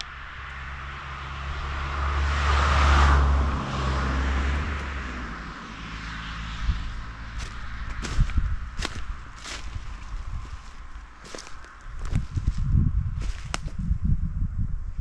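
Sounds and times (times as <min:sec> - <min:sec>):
vehicle passing by: 0:00.0 - 0:13.9
steady low rumble: 0:03.4 - 0:15.0.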